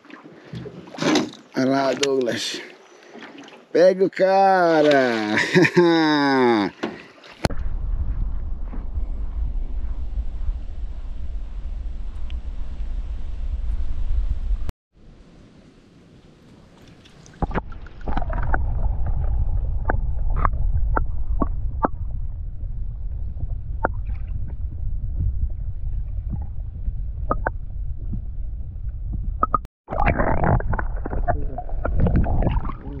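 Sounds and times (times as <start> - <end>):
boat engine low rumble: 7.5 - 14.7, 17.8 - 29.6.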